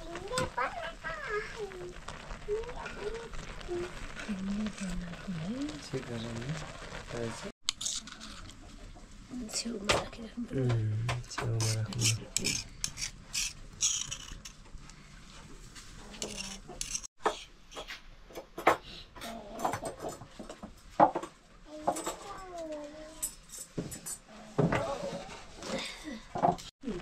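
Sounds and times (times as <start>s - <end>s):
small objects clicking and knocking: 0.0s - 8.8s, 10.6s - 15.0s, 16.1s - 22.3s.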